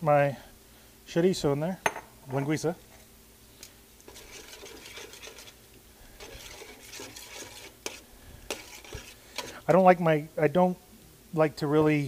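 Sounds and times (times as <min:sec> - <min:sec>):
metal utensil scraping in pot: 0:04.1 - 0:09.7.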